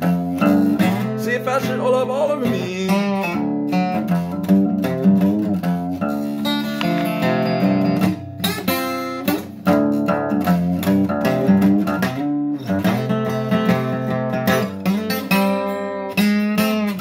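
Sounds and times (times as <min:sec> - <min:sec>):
acoustic guitar strumming: 0:00.0 - 0:17.0
person singing: 0:00.8 - 0:03.4.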